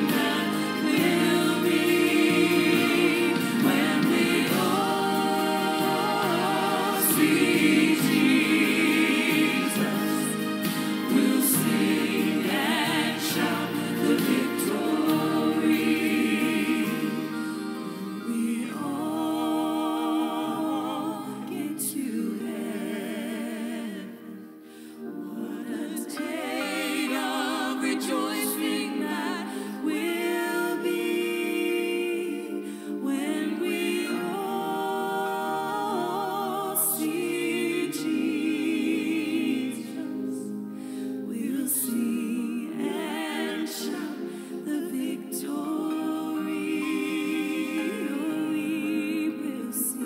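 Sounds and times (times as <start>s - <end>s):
vocal group singing a hymn: 0.0s - 50.0s.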